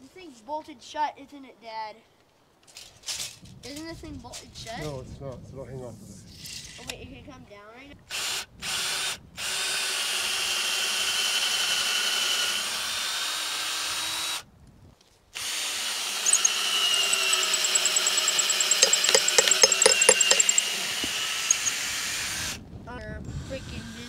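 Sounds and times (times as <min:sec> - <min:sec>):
drill clicking: 0:16.3 - 0:20.6, 0:21.5 - 0:21.7
cordless drill whining: 0:16.3 - 0:21.8.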